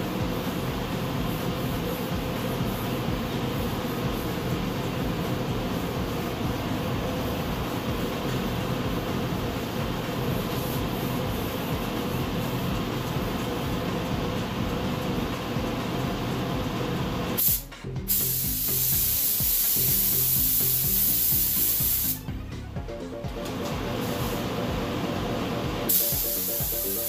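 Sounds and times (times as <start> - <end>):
background music: 0.0 - 27.0
steady noise: 0.0 - 27.0
paint spray gun hissing: 17.4 - 22.2, 25.9 - 27.0.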